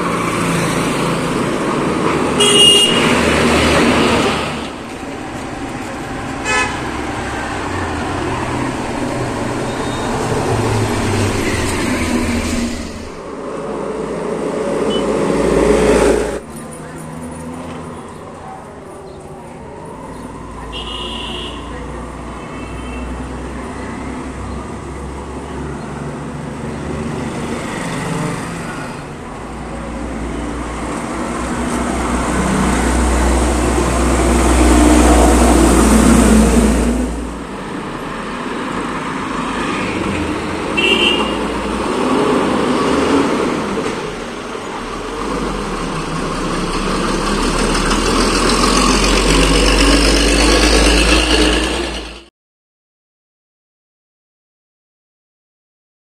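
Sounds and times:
diesel trucks rumbling past: 0:00.0 - 0:52.3
short horn toot: 0:02.4 - 0:03.1.

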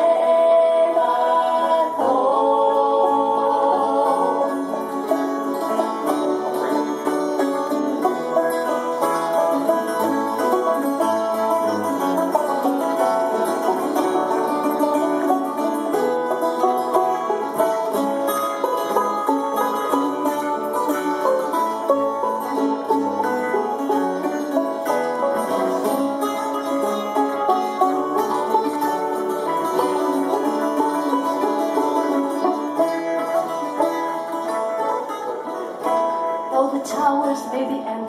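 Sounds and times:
acoustic guitar: 0:00.0 - 0:38.0
banjo: 0:00.0 - 0:38.0
plucked string instrument: 0:00.0 - 0:38.0.

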